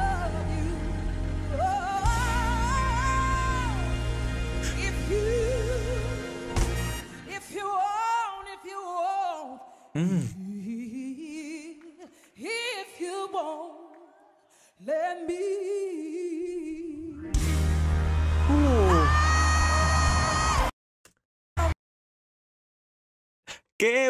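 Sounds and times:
woman singing soul ballad: 0:00.0 - 0:09.7, 0:10.4 - 0:14.2, 0:14.8 - 0:17.2.

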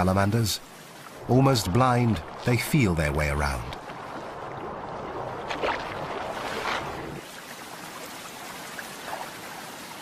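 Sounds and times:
rushing river water: 0:00.0 - 0:10.0.

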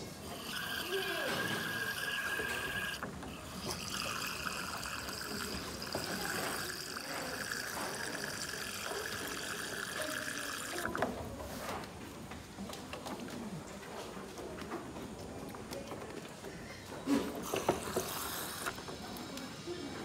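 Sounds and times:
water running into drinking bowl: 0:00.0 - 0:11.1, 0:17.5 - 0:18.8.

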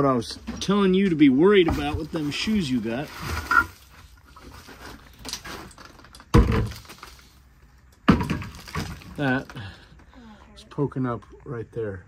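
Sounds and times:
rubble rustling: 0:00.4 - 0:10.1
wooden boards clattering: 0:01.6 - 0:07.2, 0:08.0 - 0:09.7.

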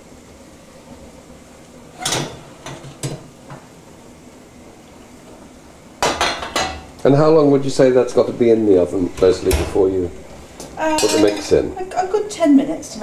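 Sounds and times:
metal cookware clinking: 0:10.9 - 0:11.6.

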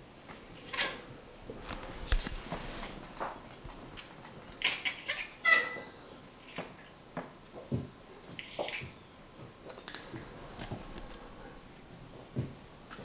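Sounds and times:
cat chirping: 0:04.6 - 0:06.6.

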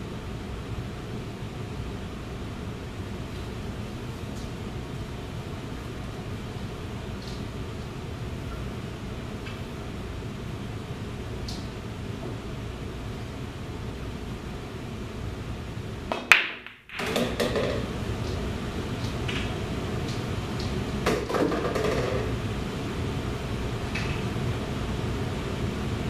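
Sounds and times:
cue ball breaking rack crack: 0:16.1 - 0:17.9, 0:21.0 - 0:22.3
pool balls clacking: 0:16.1 - 0:18.4, 0:19.0 - 0:22.4.

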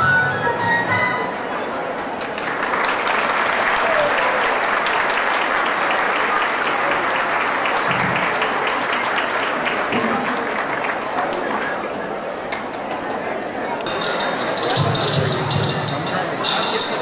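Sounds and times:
audience applauding: 0:02.0 - 0:13.2.

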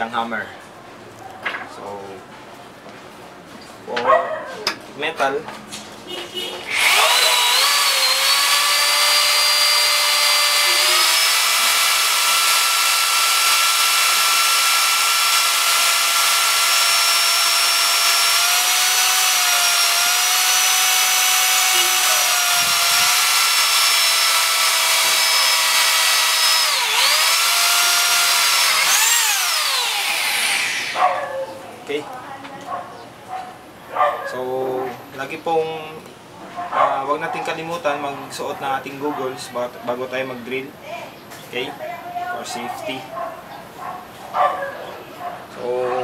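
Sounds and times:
drill whining through steel: 0:06.6 - 0:31.0.

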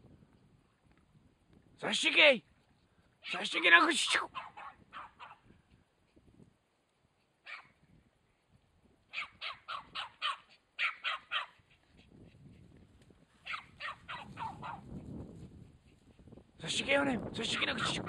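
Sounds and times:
dog barking: 0:04.1 - 0:05.4, 0:07.4 - 0:07.8, 0:09.1 - 0:11.6, 0:13.4 - 0:14.8.

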